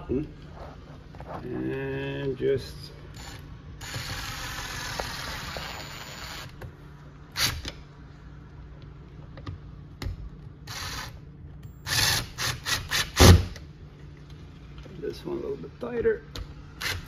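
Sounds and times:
cordless drill driving screws: 0:03.2 - 0:06.5, 0:11.9 - 0:13.4.

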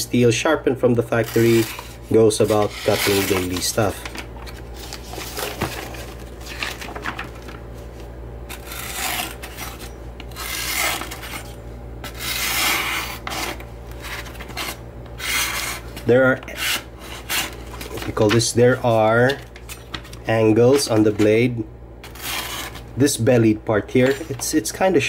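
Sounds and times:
blade slicing magazine pages: 0:01.2 - 0:21.3.

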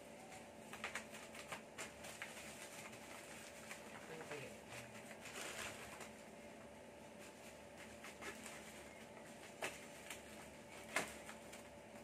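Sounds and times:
plastic pouch crinkling: 0:00.2 - 0:06.2.

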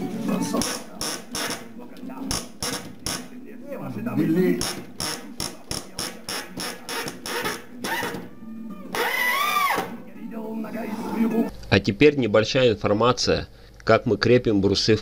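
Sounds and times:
drill whine: 0:08.9 - 0:09.9.

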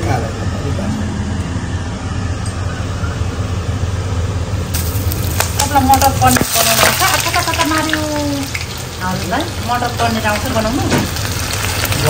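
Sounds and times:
seeds sizzling in hot oil: 0:04.7 - 0:12.0.

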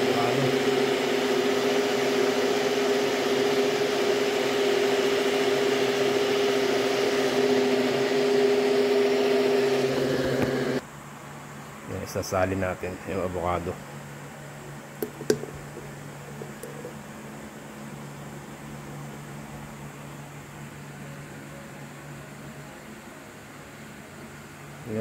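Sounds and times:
blender running: 0:00.0 - 0:10.8, 0:15.0 - 0:17.0.

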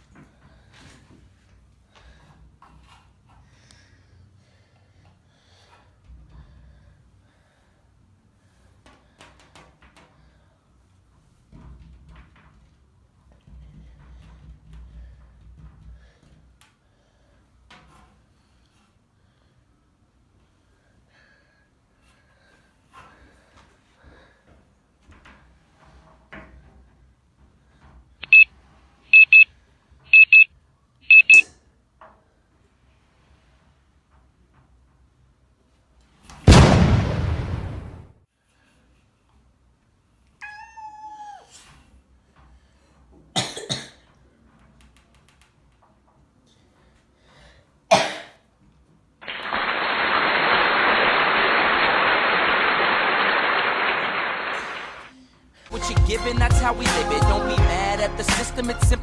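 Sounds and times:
short high electronic beeps: 0:28.2 - 0:28.5, 0:29.1 - 0:29.5, 0:30.1 - 0:30.5, 0:31.1 - 0:31.4
person coughing: 0:43.4 - 0:44.0, 0:47.9 - 0:48.4
loud rushing hiss: 0:49.2 - 0:55.1.

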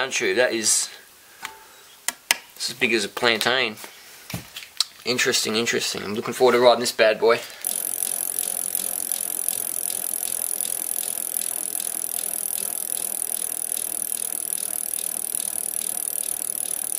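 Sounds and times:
bicycle freewheel hub ticking: 0:07.6 - 0:16.9
steady high hiss: 0:07.6 - 0:16.9.

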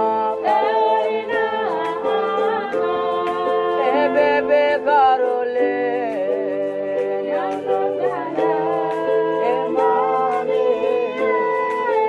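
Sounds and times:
held chords: 0:00.0 - 0:12.0
person singing: 0:00.0 - 0:12.0.

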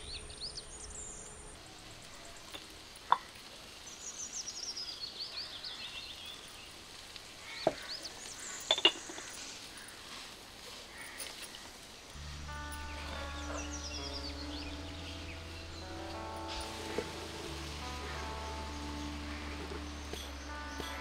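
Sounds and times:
food sizzling in a pot: 0:02.1 - 0:21.0
high chirps: 0:12.2 - 0:21.0.

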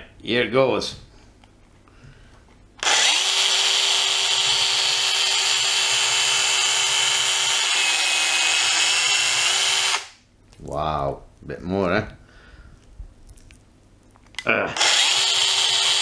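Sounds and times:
mini chainsaw whining: 0:02.8 - 0:10.1, 0:14.7 - 0:16.0.

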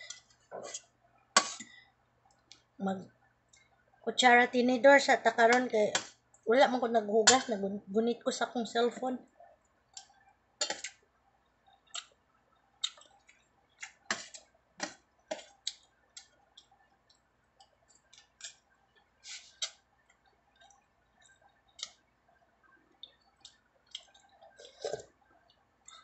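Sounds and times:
person chewing food: 0:11.6 - 0:12.2, 0:12.8 - 0:16.9, 0:17.6 - 0:26.0.

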